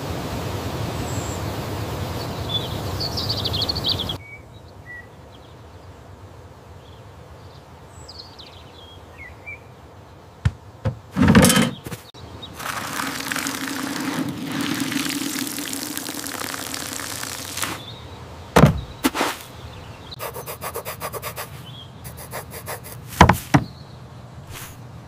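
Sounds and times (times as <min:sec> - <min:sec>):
soft thumps: 0:10.4 - 0:12.1, 0:23.2 - 0:23.7
rubbing strokes on soil: 0:11.8 - 0:17.9, 0:19.0 - 0:19.6, 0:20.2 - 0:23.7, 0:24.5 - 0:24.8
water pouring onto soil: 0:12.6 - 0:17.9.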